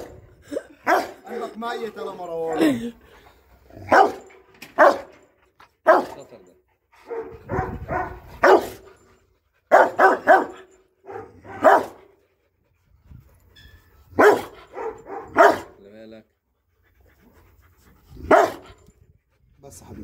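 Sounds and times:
dog barking aggressively: 0.8s - 1.6s, 3.7s - 5.2s, 5.8s - 6.3s, 7.0s - 8.8s, 9.7s - 12.1s, 14.2s - 15.7s, 18.2s - 18.7s.

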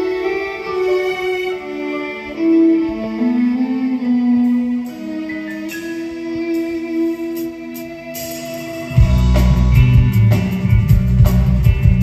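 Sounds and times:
held violin notes: 0.0s - 12.0s
rock band playing live: 3.9s - 12.0s
heavy bass and drums: 8.9s - 12.0s.

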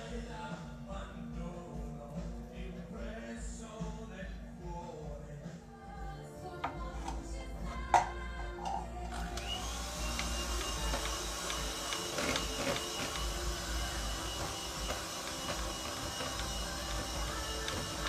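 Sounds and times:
electric hand mixer whining: 9.1s - 18.0s
beaters churning batter: 9.3s - 18.0s.

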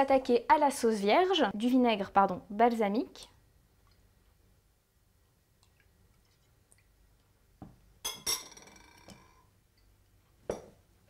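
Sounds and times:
metal spoon clinking on ceramic bowl: 8.0s - 9.3s.

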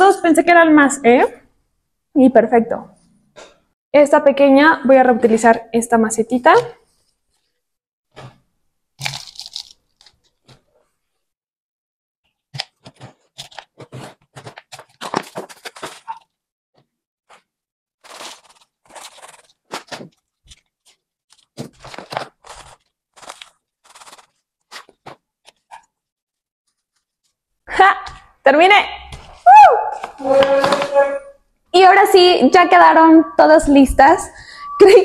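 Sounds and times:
potting mix crunching and pouring: 9.0s - 10.2s.

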